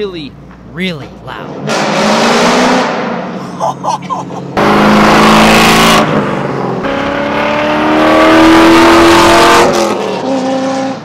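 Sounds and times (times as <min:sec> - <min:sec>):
loud car engine accelerating: 0:01.4 - 0:03.4, 0:04.4 - 0:11.0.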